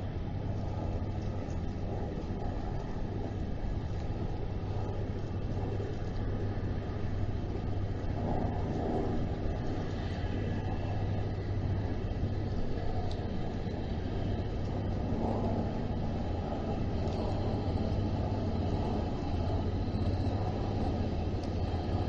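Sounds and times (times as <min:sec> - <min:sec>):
constant hum: 0:00.0 - 0:22.0
low mechanical rumble: 0:00.0 - 0:22.0.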